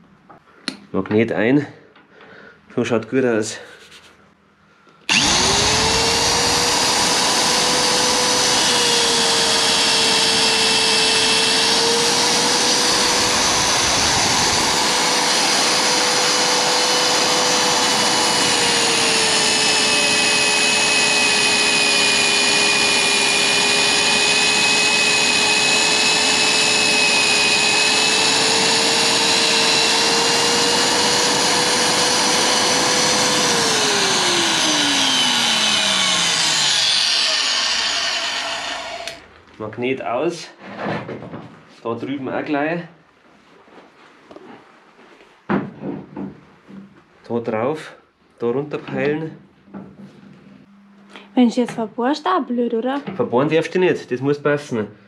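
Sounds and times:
magnetic drill whining: 5.1 - 39.3.

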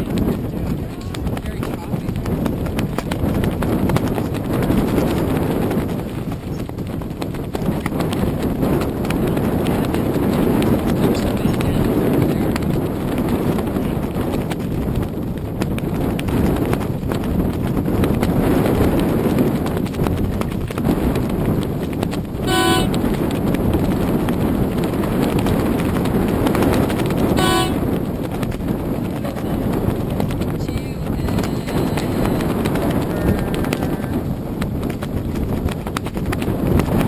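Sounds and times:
choppy water lapping: 0.0 - 37.0
wind rumble on microphone: 0.0 - 37.0
horn toots: 22.4 - 23.0, 27.3 - 27.9.

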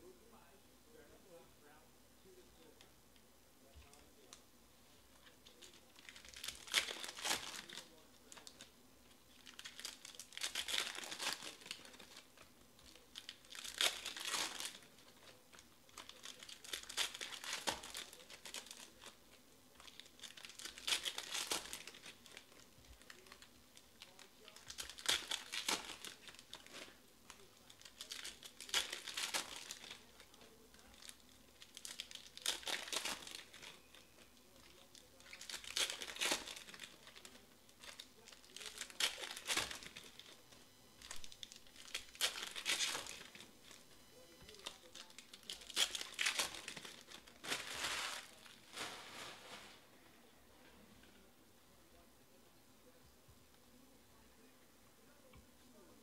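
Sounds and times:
foil packs tearing and crinkling: 5.5 - 8.7, 9.4 - 12.3, 12.9 - 19.2, 19.8 - 30.3, 30.9 - 34.0, 34.7 - 40.4, 41.1 - 43.5, 44.5 - 49.7.

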